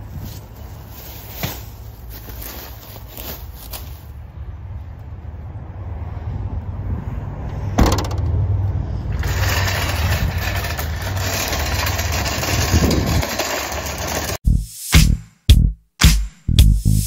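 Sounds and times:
thump: 7.8 - 8.4
cart wheels rattling over asphalt: 9.1 - 14.4.

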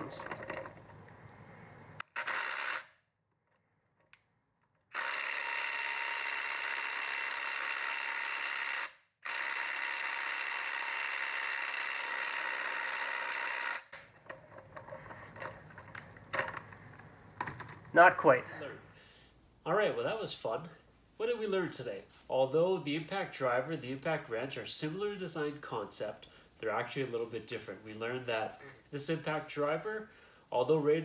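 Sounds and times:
faint clicks and handling: 13.9 - 17.9.

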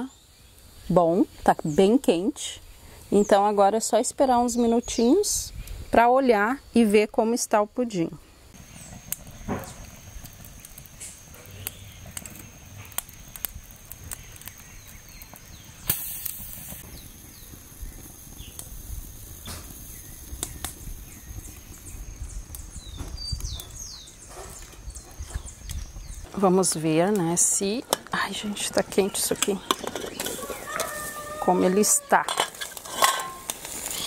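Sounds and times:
fire hissing: 0.1 - 34.0
wood fire crackling: 8.3 - 34.0.

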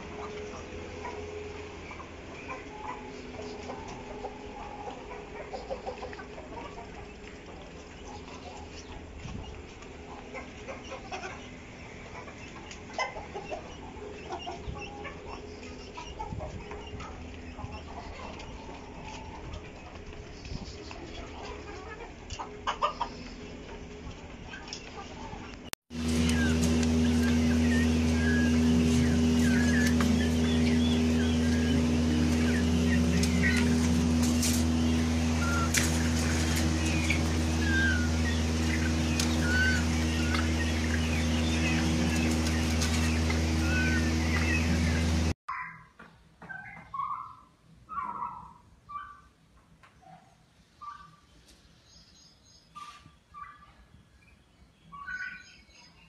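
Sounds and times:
steady low hum: 0.0 - 24.5, 25.9 - 45.4
chickens clucking: 0.0 - 45.4, 46.4 - 49.3
peafowl whistled peeps: 24.5 - 45.8, 46.5 - 49.3, 50.8 - 51.3, 52.3 - 56.0.

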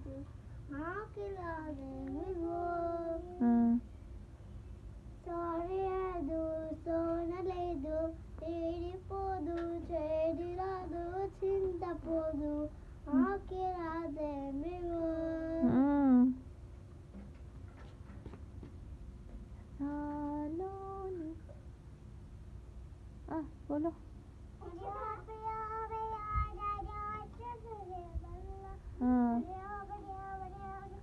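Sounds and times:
child singing: 0.0 - 3.8, 5.2 - 16.0, 19.8 - 21.5, 24.6 - 31.0.

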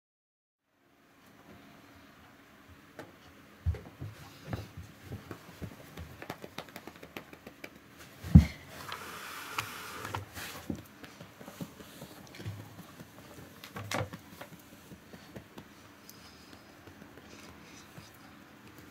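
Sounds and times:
hands stroking cat fur: 8.9 - 18.7.

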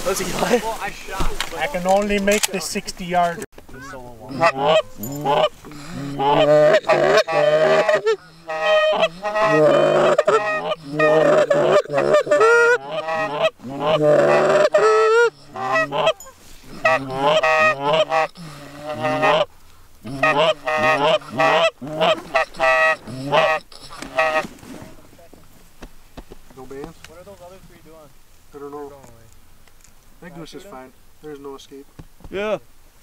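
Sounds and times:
geese honking: 0.0 - 25.1.

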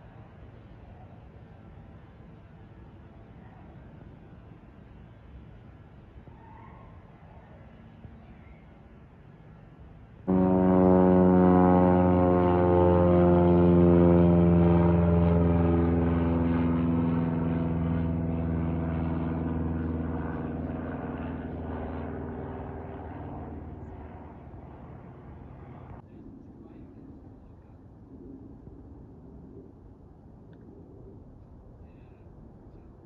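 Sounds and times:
propeller airplane passing overhead: 10.2 - 31.7.

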